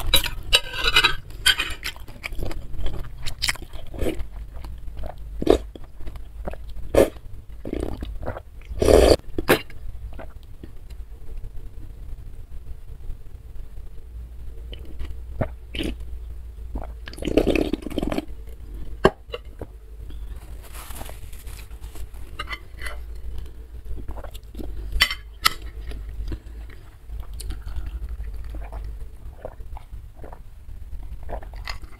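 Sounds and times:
metal spoon scraping a plate: 0:00.0 - 0:01.9, 0:22.3 - 0:23.0
slurping broth: 0:07.0 - 0:09.2.

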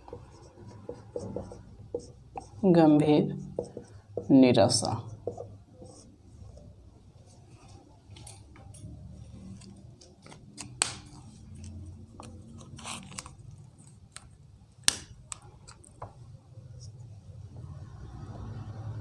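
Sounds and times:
marker plastic clicks: 0:14.1 - 0:16.1.

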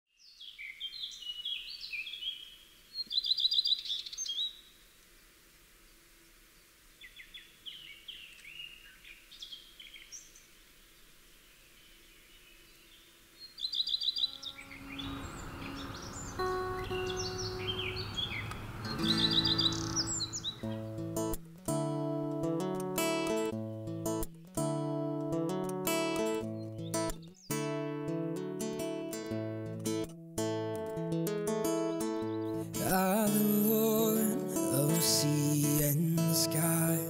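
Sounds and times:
songbirds chirping: 0:00.1 - 0:28.0, 0:31.6 - 0:37.0
loud bird trill: 0:13.4 - 0:20.9
acoustic guitar strummed: 0:14.2 - 0:37.0.

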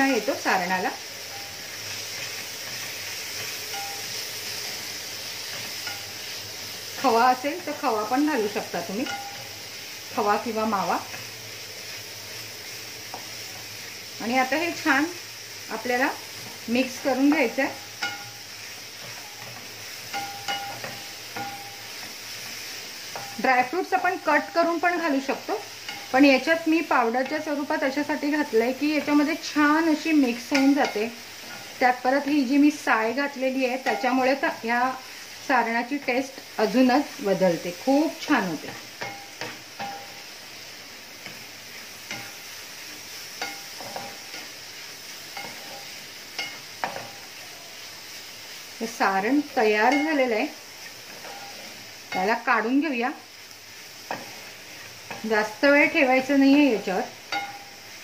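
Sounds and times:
faint steady sizzle: 0:00.0 - 0:58.0
wooden spatula scraping a pan: 0:01.3 - 0:11.3, 0:15.8 - 0:35.3, 0:41.2 - 0:47.8, 0:49.4 - 0:52.8, 0:53.8 - 0:57.6.

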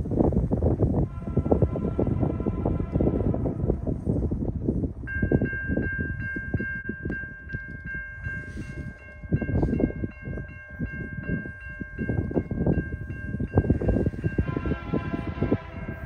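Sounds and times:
freight train rumbling past: 0:00.0 - 0:16.0
locomotive bell ringing: 0:05.1 - 0:16.0.

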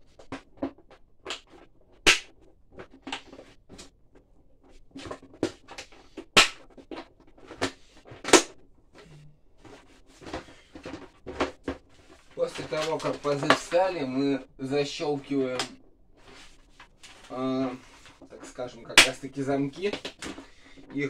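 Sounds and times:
plastic knocks and clicks: 0:00.0 - 0:08.7, 0:09.6 - 0:13.7, 0:19.8 - 0:21.0.

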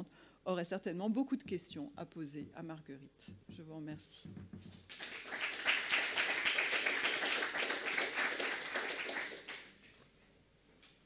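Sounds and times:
audience applauding: 0:04.9 - 0:09.7.

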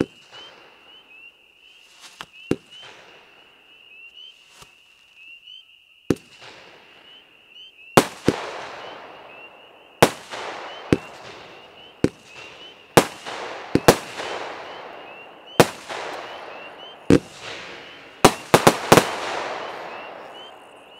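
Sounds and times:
firework bangs: 0:08.0 - 0:20.9
fizzing crackling firework tails: 0:10.0 - 0:20.2.

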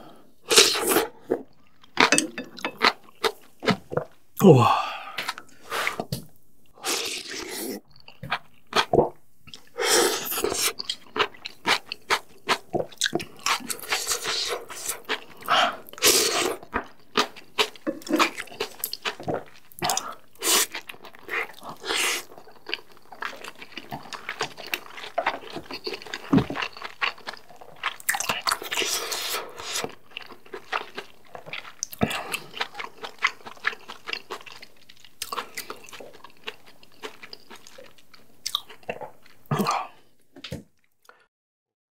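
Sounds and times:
person slurping noodles: 0:00.4 - 0:01.4, 0:06.8 - 0:07.8, 0:09.6 - 0:10.9, 0:13.4 - 0:16.7, 0:19.8 - 0:22.4, 0:28.2 - 0:29.9
wet chewing and biting: 0:10.4 - 0:39.7.

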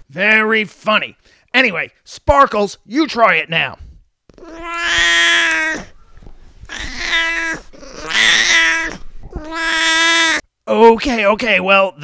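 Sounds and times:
cat meowing: 0:04.3 - 0:06.0, 0:06.7 - 0:10.4.

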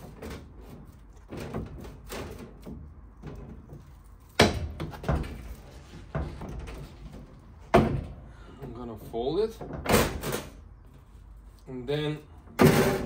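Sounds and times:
knocks of sheet metal folder: 0:04.4 - 0:05.5.

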